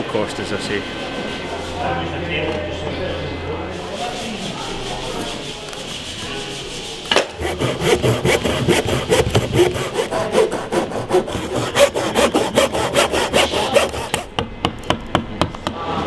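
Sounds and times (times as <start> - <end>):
hand saw cutting wood: 3.8 - 14.3.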